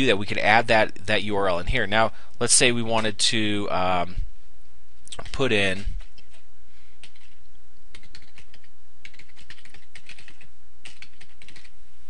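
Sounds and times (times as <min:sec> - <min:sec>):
steady low hum: 0:00.0 - 0:12.0
keyboard typing: 0:07.0 - 0:11.7.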